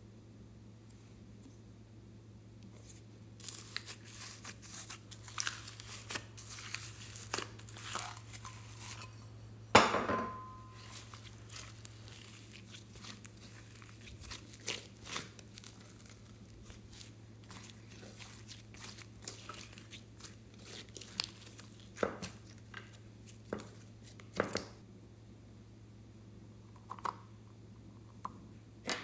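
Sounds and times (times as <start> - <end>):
slime squeezed by hand: 10.8 - 22.6.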